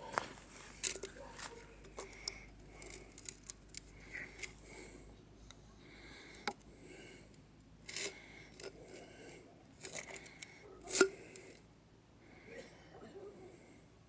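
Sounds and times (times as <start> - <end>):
metal can scrapes and crinkles: 7.9 - 9.1, 9.8 - 11.5.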